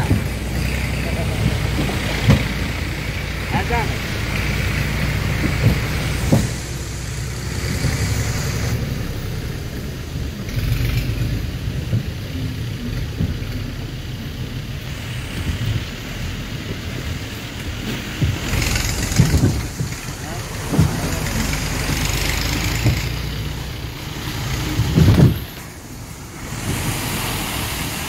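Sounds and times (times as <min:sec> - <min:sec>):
vehicle jolting knock: 0:00.0 - 0:03.6, 0:04.2 - 0:08.2, 0:17.7 - 0:25.9
engine running at low revs: 0:00.0 - 0:28.0.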